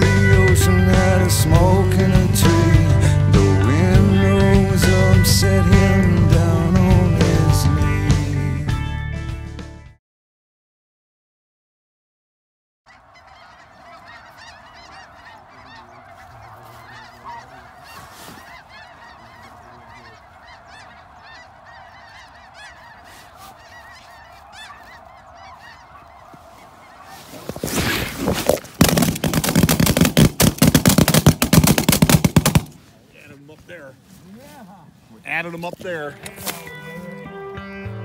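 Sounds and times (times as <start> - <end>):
geese honking: 0.0 - 8.4, 12.9 - 37.5
shotguns firing: 28.7 - 32.8.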